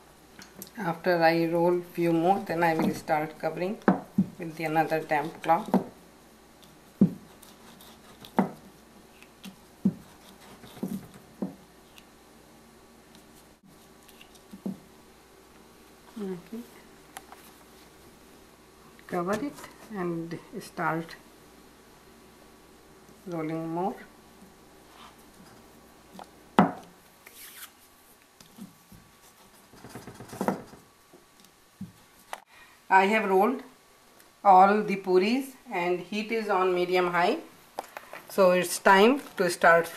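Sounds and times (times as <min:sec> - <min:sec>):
rolling pin rolling dough: 0:06.9 - 0:11.6
rolling pin knocking on board: 0:08.4 - 0:08.6.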